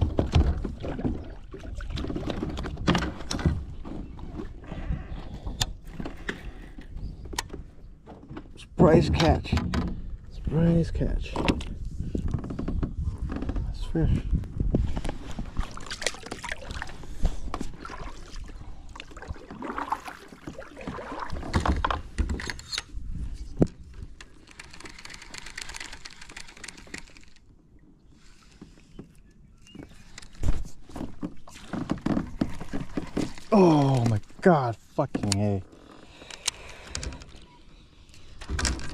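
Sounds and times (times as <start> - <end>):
water lapping against kayak: 0.0 - 10.5, 11.6 - 38.9.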